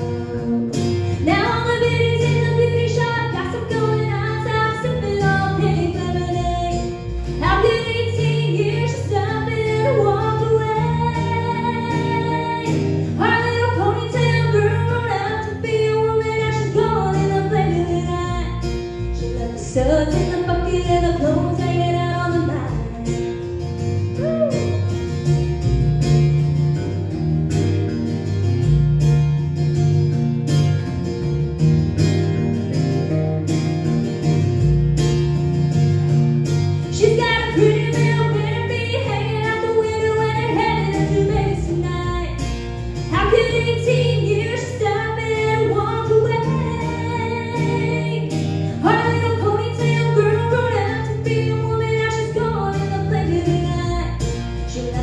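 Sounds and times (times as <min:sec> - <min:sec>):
woman singing: 0:00.0 - 0:23.6, 0:36.9 - 0:55.0
acoustic guitar strumming: 0:00.0 - 0:55.0
bass line: 0:00.0 - 0:55.0
electric guitar: 0:00.0 - 0:55.0.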